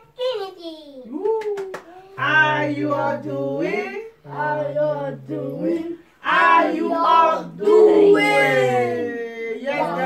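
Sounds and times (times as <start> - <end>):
group singing unaccompanied chant: 2.2 - 10.0.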